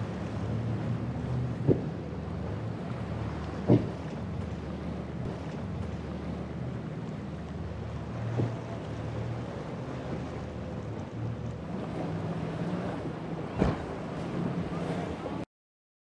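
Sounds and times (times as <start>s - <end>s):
outboard motors running: 0.0s - 15.4s
water rushing off hull: 0.0s - 15.4s
brief thump: 3.6s - 4.0s, 13.6s - 13.9s.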